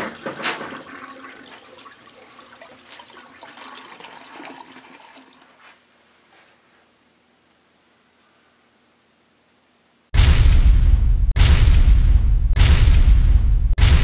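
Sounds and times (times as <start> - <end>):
toilet flushing: 0.0 - 5.6.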